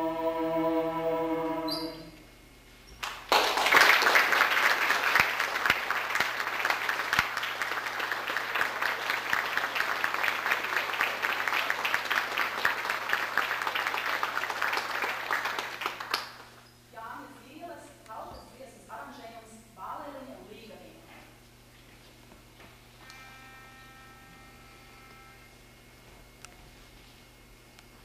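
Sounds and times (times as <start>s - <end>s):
a cappella choir holding chord: 0.0s - 2.2s
audience applause: 3.0s - 16.5s.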